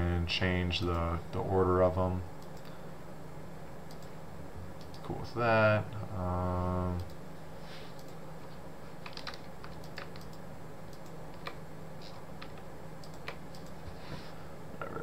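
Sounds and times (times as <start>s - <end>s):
steady low hum: 0.0s - 15.0s
mouse and keyboard clicking: 9.0s - 13.8s.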